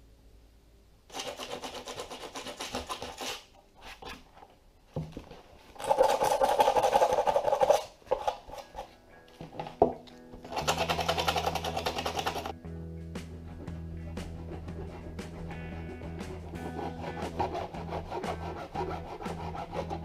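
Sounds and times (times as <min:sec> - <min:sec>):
sanding plastic: 0:01.1 - 0:04.1, 0:10.5 - 0:12.5, 0:14.1 - 0:20.0.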